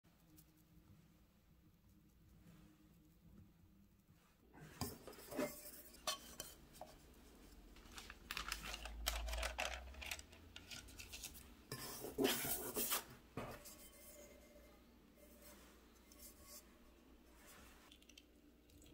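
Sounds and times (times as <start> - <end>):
parchment paper rustling: 6.8 - 13.8.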